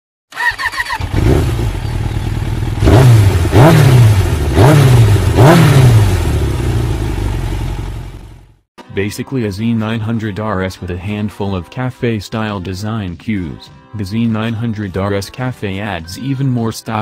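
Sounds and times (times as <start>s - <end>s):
motorcycle engine revving: 0.3s - 8.6s.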